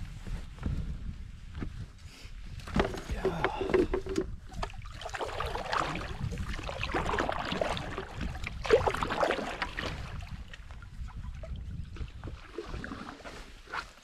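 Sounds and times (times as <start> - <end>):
wind rumble on microphone: 0.0 - 14.0
paddle strokes splashing water: 2.7 - 14.0.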